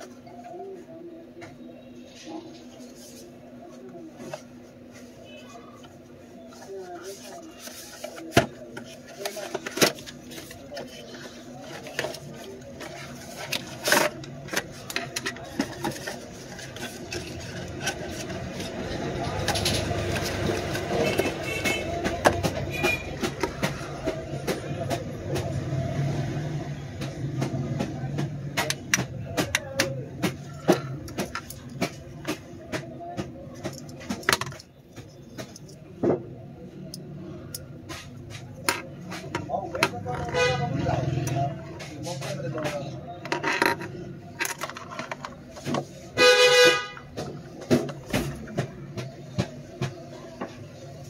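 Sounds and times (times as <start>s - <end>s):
paperboard box rustling and scraping: 5.8s - 21.8s.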